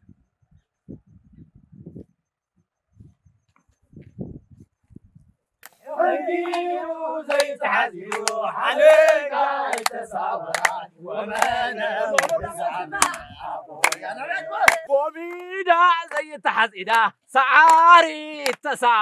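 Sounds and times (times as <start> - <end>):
sharp claps: 5.6 - 18.8
group singing a chant: 5.8 - 18.7.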